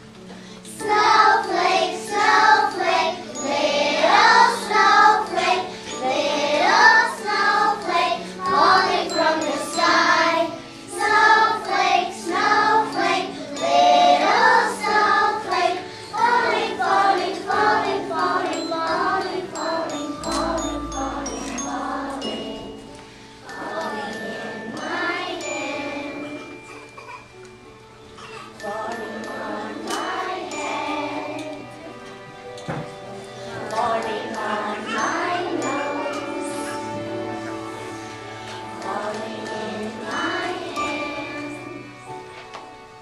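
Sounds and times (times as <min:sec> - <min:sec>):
young children singing: 0:00.7 - 0:27.5, 0:28.2 - 0:42.4
bells jingling: 0:17.8 - 0:31.4.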